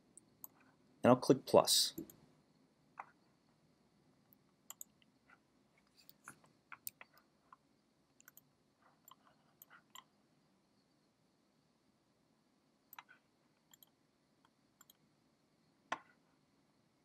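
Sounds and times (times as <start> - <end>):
computer mouse clicks: 0.4 - 0.7, 4.7 - 5.1, 6.0 - 7.6, 8.2 - 10.1, 12.9 - 14.0, 14.8 - 15.0.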